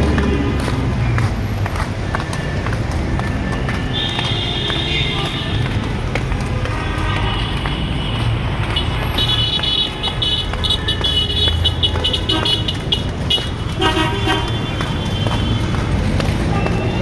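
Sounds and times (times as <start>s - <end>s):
traffic rumble: 0.0s - 17.0s
car horns tooting: 3.3s - 5.9s, 6.5s - 17.0s.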